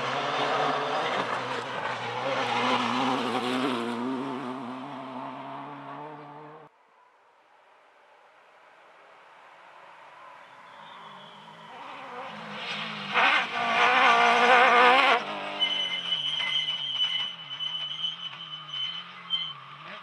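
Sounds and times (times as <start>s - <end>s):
buggy engine revving hard: 0.0s - 6.7s, 11.8s - 15.8s.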